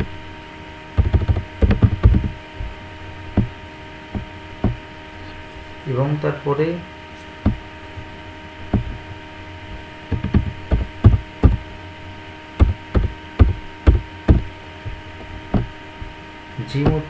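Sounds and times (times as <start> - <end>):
steady electrical hum: 0.0 - 17.0
keyboard typing: 1.0 - 2.3, 10.1 - 11.6, 12.6 - 14.4.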